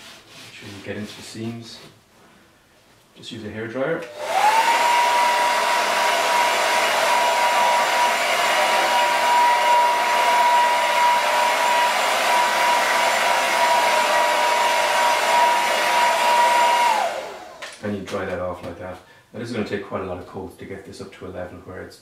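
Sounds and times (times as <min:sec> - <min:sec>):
hair dryer running: 0:04.0 - 0:17.8.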